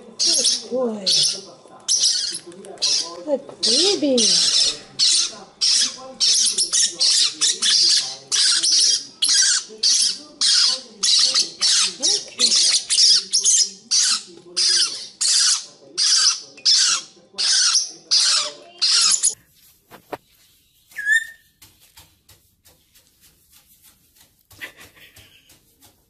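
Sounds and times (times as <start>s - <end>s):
parrotlets rasping begging calls: 0.2s - 19.4s.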